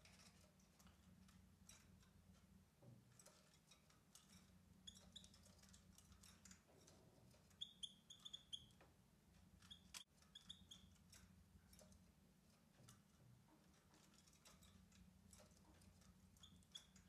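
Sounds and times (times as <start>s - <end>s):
bird chirping: 4.8s - 5.6s, 7.5s - 8.8s, 9.6s - 11.0s.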